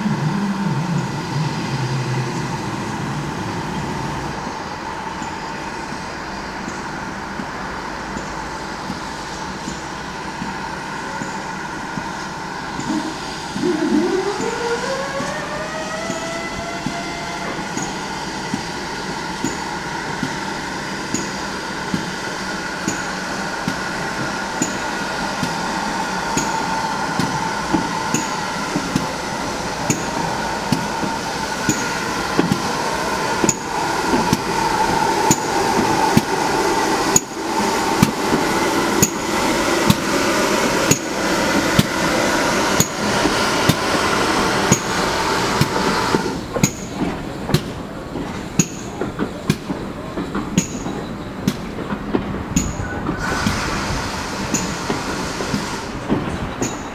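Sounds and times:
train wheels clicking over rail joints: 0.0s - 56.9s
steam locomotive whistle: 12.4s - 19.8s, 22.8s - 46.9s, 52.6s - 56.0s.

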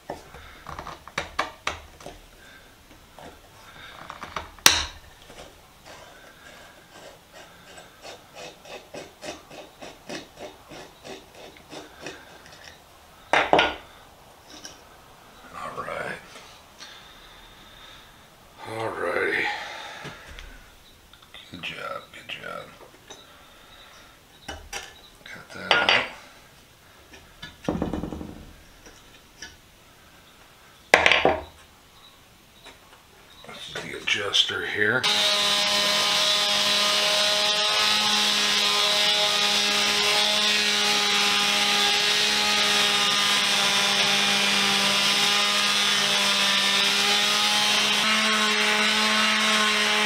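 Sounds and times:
screwdriver scraping stuck screw: 4.2s - 12.8s
metal tools clattering on workbench: 25.7s - 26.2s.

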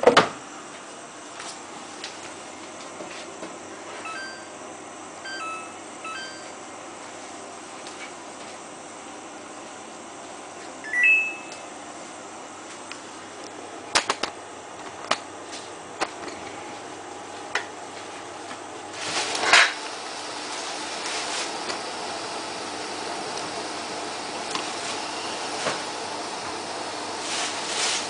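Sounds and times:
washing machine running: 1.2s - 28.0s
two-note rising beep: 10.9s - 11.7s.

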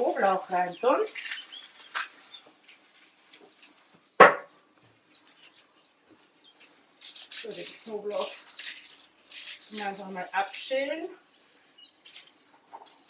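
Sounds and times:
cricket chirping: 1.1s - 10.6s, 11.3s - 13.0s
sharp knock: 4.2s - 4.5s.

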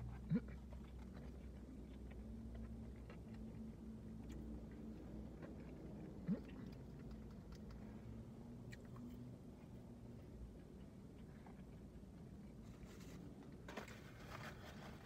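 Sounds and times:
person chewing food: 0.0s - 13.7s
low steady hum: 0.0s - 15.0s.

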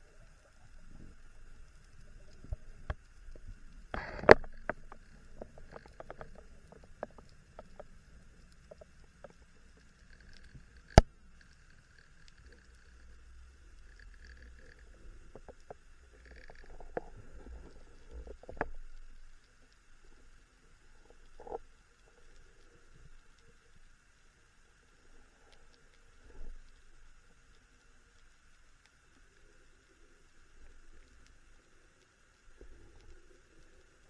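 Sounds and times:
faint low underwater rumble: 0.0s - 34.0s
underwater clicks and knocks: 2.3s - 7.9s, 14.1s - 19.0s, 21.3s - 21.6s.

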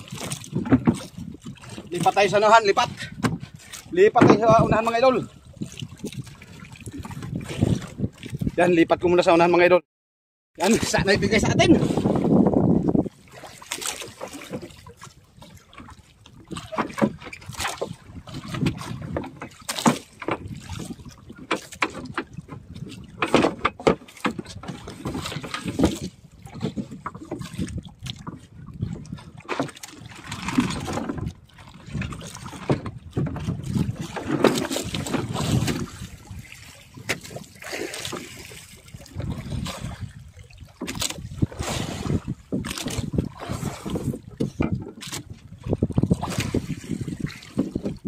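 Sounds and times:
gear knocking on boat: 0.0s - 5.2s, 16.3s - 40.1s, 40.8s - 46.6s
water slapping against hull: 0.0s - 9.8s, 10.6s - 48.0s
wind: 0.0s - 9.8s, 10.6s - 48.0s.

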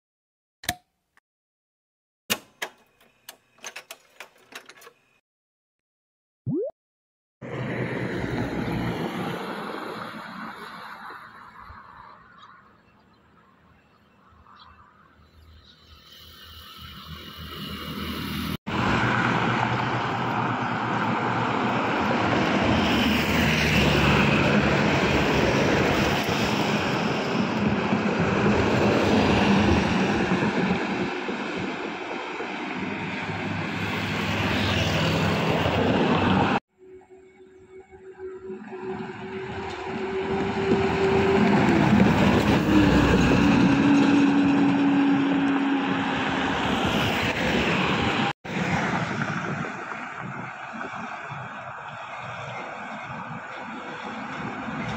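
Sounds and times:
diesel buses passing: 7.4s - 54.9s
tyre and road noise: 38.1s - 54.9s.

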